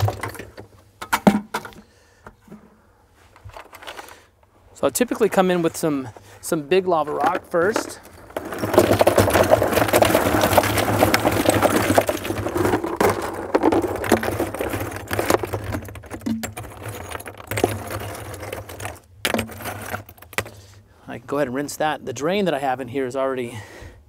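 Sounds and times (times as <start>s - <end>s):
rocks knocking: 0.0s - 1.8s, 6.9s - 20.7s
rocks clattering into plastic tub: 0.0s - 2.6s, 6.8s - 20.8s.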